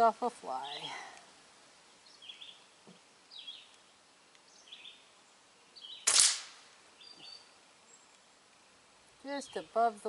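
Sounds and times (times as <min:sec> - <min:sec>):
bird chirps: 0:02.0 - 0:02.7, 0:03.3 - 0:06.2, 0:06.9 - 0:08.8
air rifle shot: 0:06.0 - 0:06.7.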